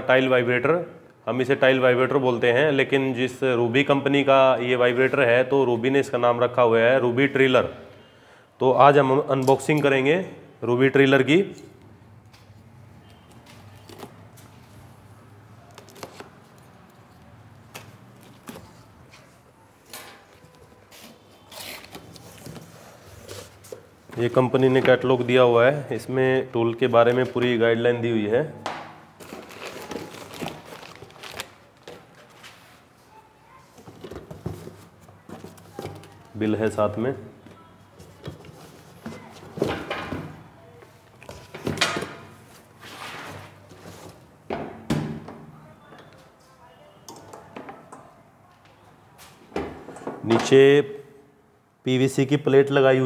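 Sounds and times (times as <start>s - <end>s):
tape and plastic tearing: 20.9s - 22.6s, 29.2s - 32.3s.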